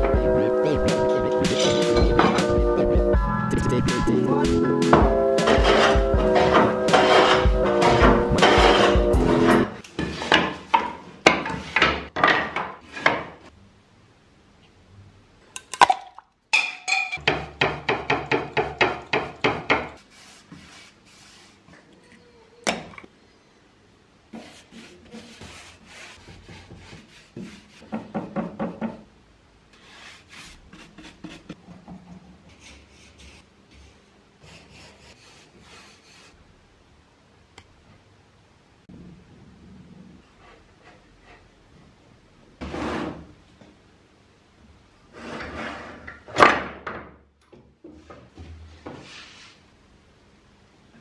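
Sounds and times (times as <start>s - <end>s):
workshop handling noises: 0.8s - 2.7s, 4.8s - 13.4s
hand plane shaving wood: 5.4s - 9.6s.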